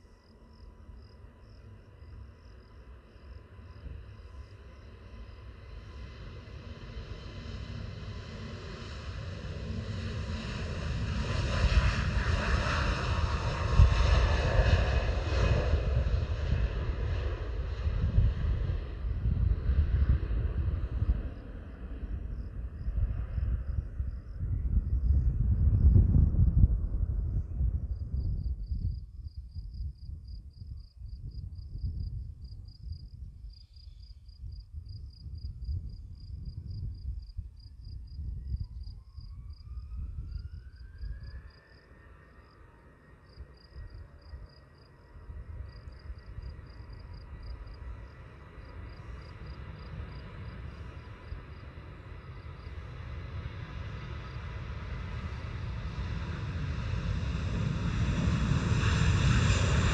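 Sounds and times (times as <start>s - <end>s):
insect chirping: 0.0s - 6.1s, 27.9s - 52.9s
wind rumble on microphone: 0.0s - 59.9s
jet engines roaring: 5.8s - 22.7s, 45.2s - 59.9s.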